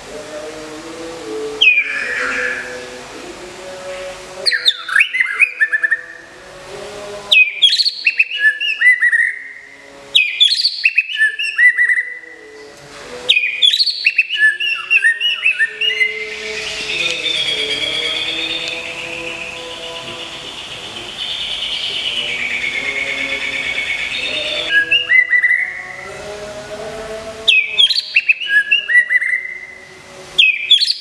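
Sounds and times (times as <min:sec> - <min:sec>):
bird singing whistled phrases: 0:01.6 - 0:02.7, 0:04.5 - 0:06.2, 0:07.3 - 0:12.3, 0:13.3 - 0:26.0, 0:27.5 - 0:29.8, 0:30.4 - 0:31.0.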